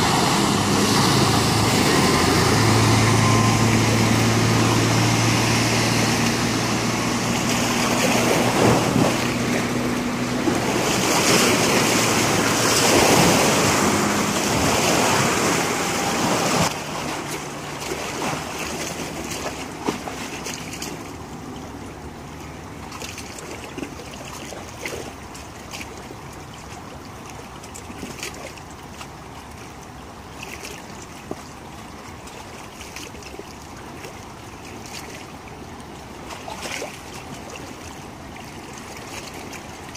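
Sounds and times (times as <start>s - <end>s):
boat engine passing: 0.0s - 39.9s
rush of boat wake: 0.0s - 39.9s
waves lapping against riverbank: 0.0s - 39.9s.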